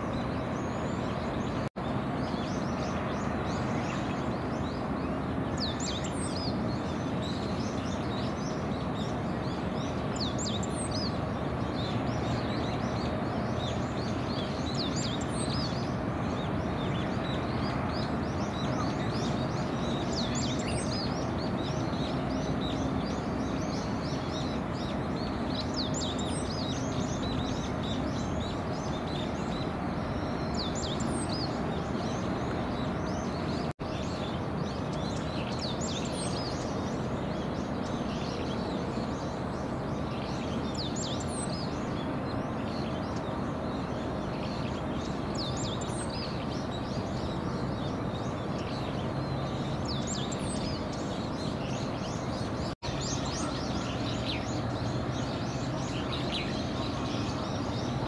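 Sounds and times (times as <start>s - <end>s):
small birds chirping: 0.0s - 58.0s
steady background hum: 0.0s - 58.0s.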